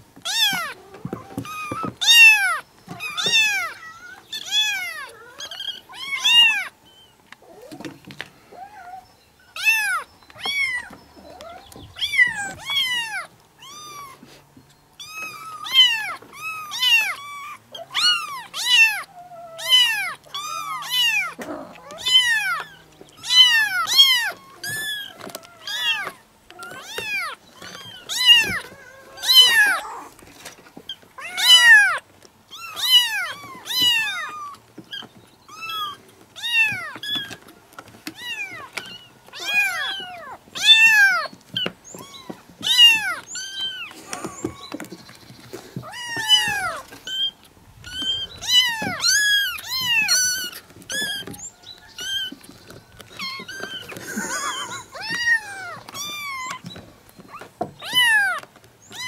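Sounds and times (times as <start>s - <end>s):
kittens meowing: 0.2s - 14.4s, 15.0s - 59.0s.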